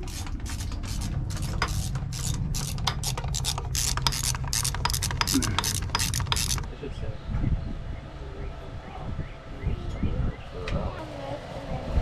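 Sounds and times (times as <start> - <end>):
socket ratchet clicking: 0.0 - 6.7
steady low hum: 0.0 - 12.0.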